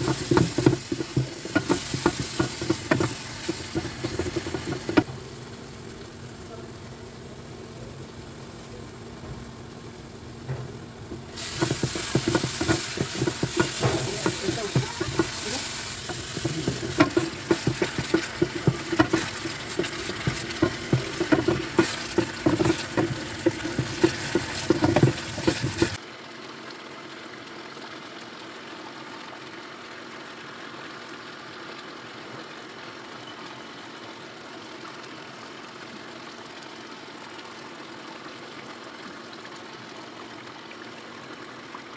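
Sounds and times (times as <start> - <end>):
spatula scraping a pan: 0.0 - 5.1, 11.1 - 26.0
paste sizzling in a pan: 0.0 - 26.0
curry boiling: 0.0 - 28.1.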